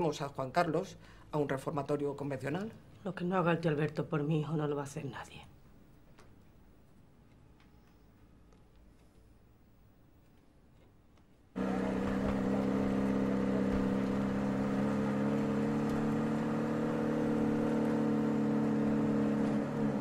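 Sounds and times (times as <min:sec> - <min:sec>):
vehicle engine droning: 0:11.6 - 0:20.0.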